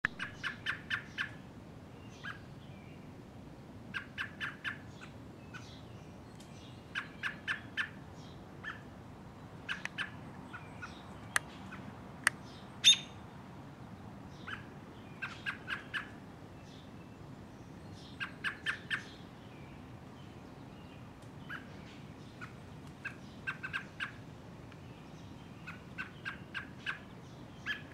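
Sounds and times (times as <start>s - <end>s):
bird giving sharp calls: 0.2s - 1.4s, 3.9s - 5.7s, 6.9s - 8.0s, 8.6s - 8.9s, 9.6s - 11.0s, 12.8s - 13.2s, 14.4s - 16.2s, 18.2s - 19.2s, 22.4s - 24.2s, 25.6s - 27.9s.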